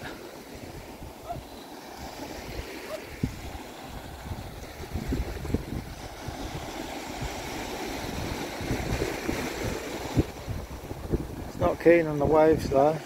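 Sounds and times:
small waves breaking on sand: 0:00.0 - 0:13.0
wind buffeting microphone: 0:00.0 - 0:13.0.

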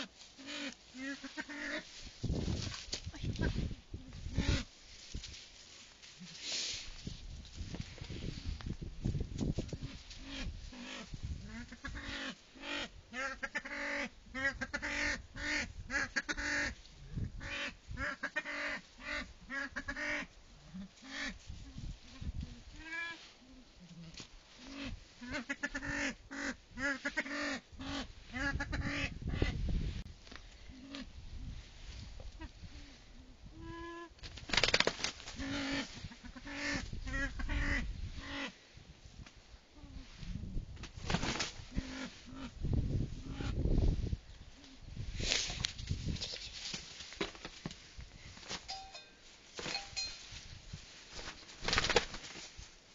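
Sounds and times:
rustling: 0:00.0 - 0:10.3, 0:43.9 - 0:52.9.

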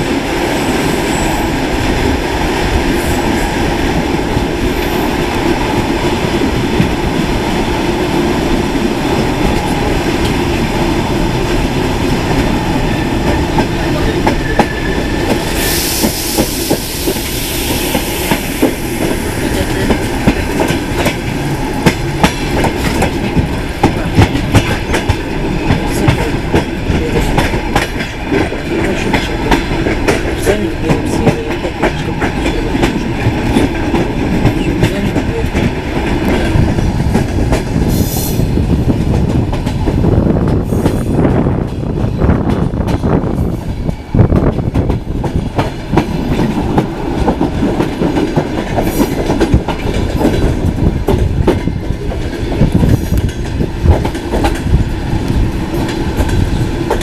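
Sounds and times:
train carriage rumble: 0:00.0 - 0:57.0
hiss: 0:15.4 - 0:19.4, 0:37.9 - 0:38.5.

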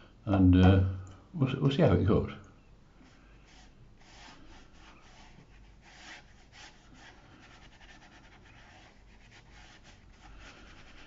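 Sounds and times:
brush swishing across paper: 0:03.0 - 0:11.0.

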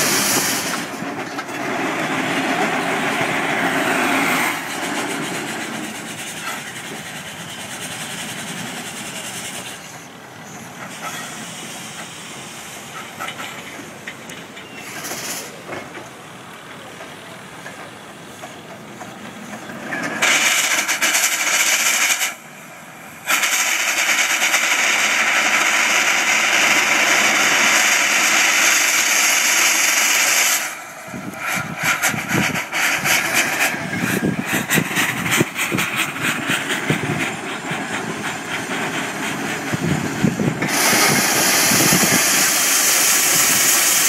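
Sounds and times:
machinery noise: 0:00.0 - 0:44.0
steam hissing: 0:00.0 - 0:44.0.

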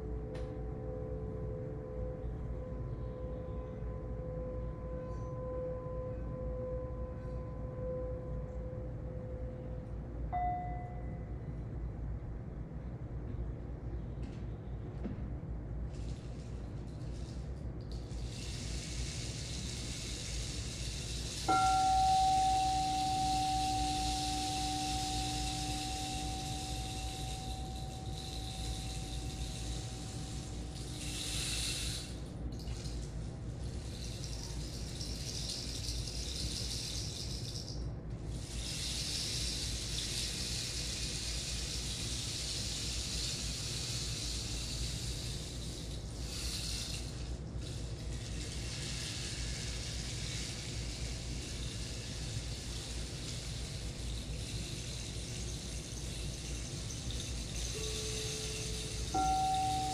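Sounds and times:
singing bowl ringing: 0:00.0 - 0:11.6, 0:20.3 - 0:32.3, 0:52.7 - 0:59.9
running water hiss: 0:18.1 - 0:37.6, 0:38.3 - 0:59.9.

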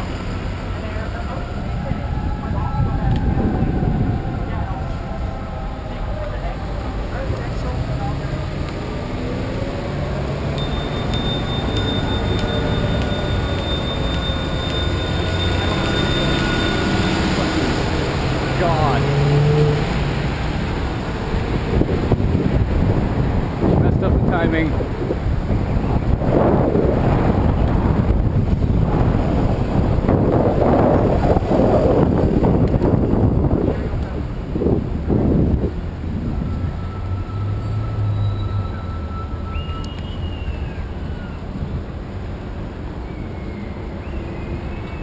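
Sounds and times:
trolley driving past: 0:00.0 - 0:23.6, 0:36.2 - 0:41.6
wind buffeting microphone: 0:00.0 - 0:37.2
street traffic rumble: 0:00.0 - 0:45.0
lower brake squeal: 0:10.6 - 0:17.8, 0:36.3 - 0:41.5, 0:43.0 - 0:45.0
high brake squeal: 0:10.6 - 0:17.9, 0:36.3 - 0:41.4, 0:43.0 - 0:45.0.

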